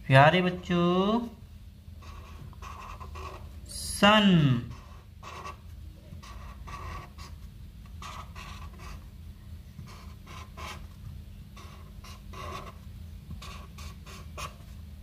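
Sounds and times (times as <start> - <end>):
steady low hum: 0.0 - 15.0
marker scratching on paper: 2.0 - 3.8, 4.5 - 9.1, 9.8 - 14.8.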